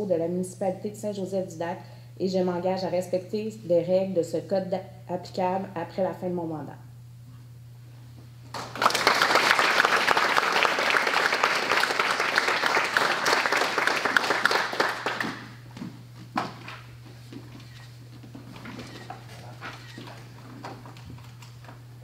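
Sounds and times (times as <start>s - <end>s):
small audience applauding: 8.5s - 15.6s.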